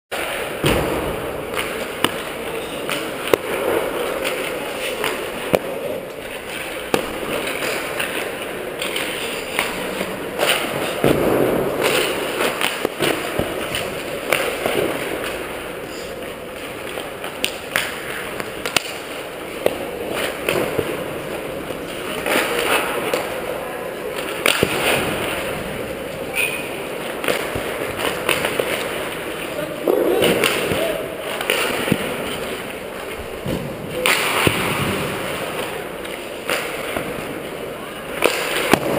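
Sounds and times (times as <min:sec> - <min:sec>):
pucks cracking off sticks: 0:00.2 - 0:38.9
skates scraping ice: 0:00.2 - 0:38.9
faint voices: 0:19.2 - 0:38.9.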